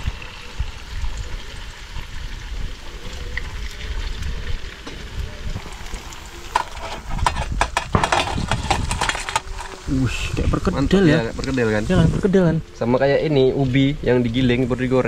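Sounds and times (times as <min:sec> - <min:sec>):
fritters frying in hot oil: 0:00.0 - 0:15.0.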